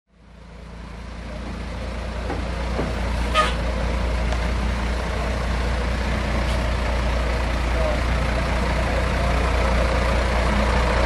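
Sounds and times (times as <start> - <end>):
truck engine rumbling: 0.1 - 11.0.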